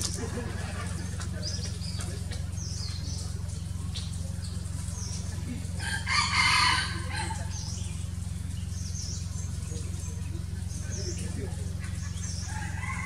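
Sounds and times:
small birds chirping: 0.0s - 13.0s
steady low hum: 0.0s - 13.0s
large fowl calling: 5.7s - 7.7s.

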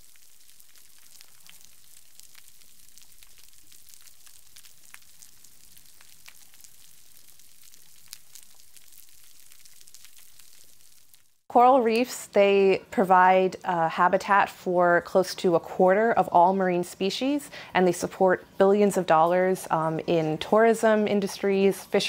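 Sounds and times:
snapping shrimp crackle: 0.0s - 11.4s.

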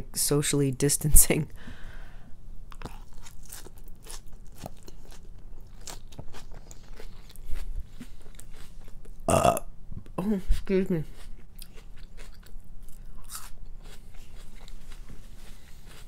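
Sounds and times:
chewing with wet crunches: 2.7s - 9.3s, 11.2s - 16.0s
person burping: 9.3s - 9.7s.

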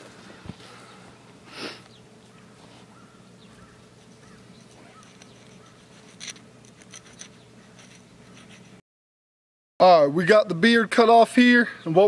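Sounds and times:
faint handling: 2.3s - 8.8s.

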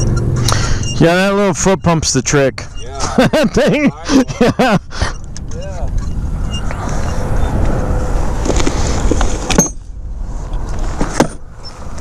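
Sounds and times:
rushing noise with low rumble: 2.5s - 12.0s.

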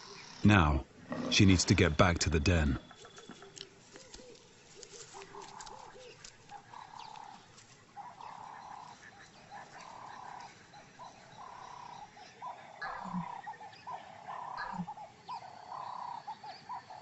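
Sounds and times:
short animal calls: 12.8s - 15.0s.

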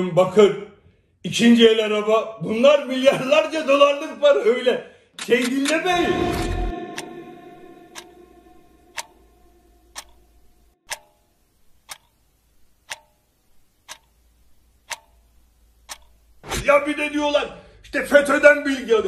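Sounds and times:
clock ticking: 5.2s - 16.4s.

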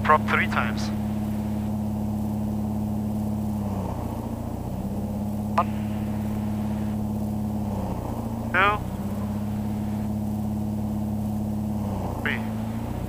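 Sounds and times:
propeller plane engine at run-up: 0.0s - 13.0s.

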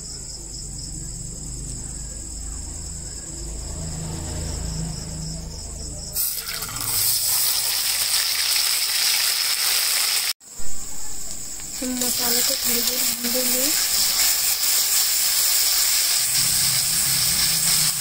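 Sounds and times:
crickets chirring: 0.0s - 18.0s
paste sizzling in hot oil: 6.2s - 10.4s, 11.2s - 18.0s.

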